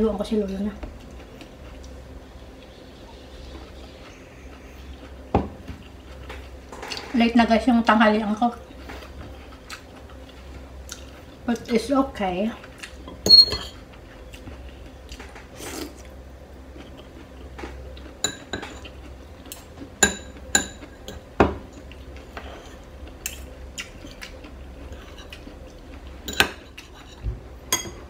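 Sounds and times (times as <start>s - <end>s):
fork and spoon clinking on plate: 13.2s - 13.8s.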